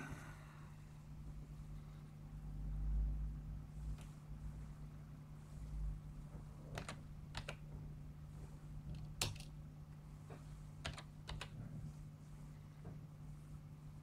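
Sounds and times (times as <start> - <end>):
steady low hum: 0.0 - 14.0
computer keyboard keystrokes: 6.7 - 7.7, 8.9 - 9.5, 10.8 - 11.6.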